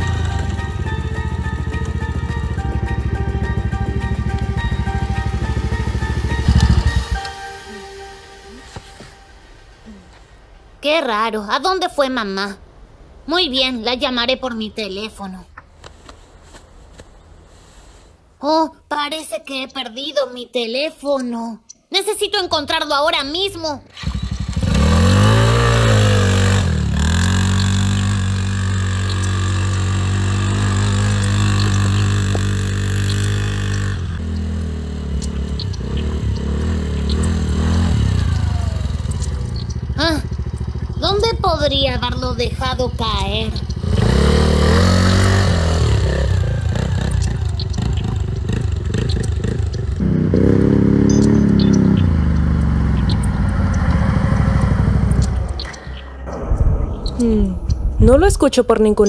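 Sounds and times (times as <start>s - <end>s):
quad bike engine running: 0.0s - 7.3s, 23.9s - 56.5s.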